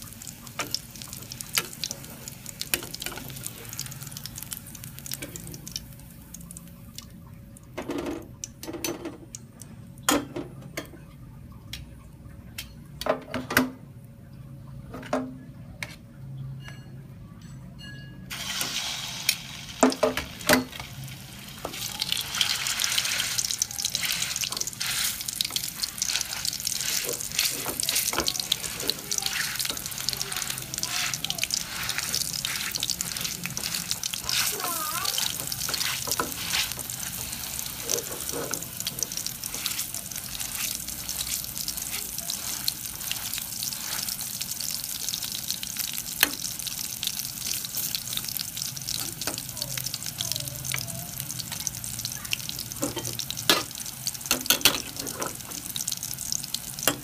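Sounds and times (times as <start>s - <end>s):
loud sizzle in hot oil: 0.0s - 8.6s, 18.2s - 57.0s
tongs and ladle scraping wok: 22.2s - 44.3s, 54.3s - 55.6s.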